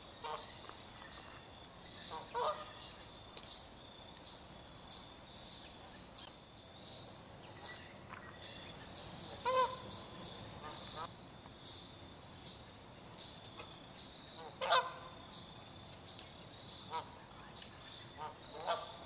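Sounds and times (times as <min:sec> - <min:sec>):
geese honking: 0:00.2 - 0:00.5, 0:02.1 - 0:02.8, 0:09.3 - 0:11.1, 0:14.4 - 0:15.1, 0:18.2 - 0:19.0.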